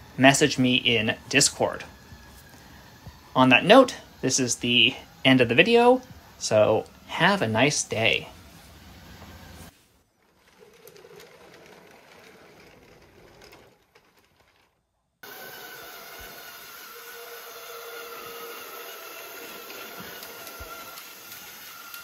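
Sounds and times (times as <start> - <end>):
toy train motor whirring: 0.0 - 22.0
plastic model rustling and clicking: 10.2 - 14.8.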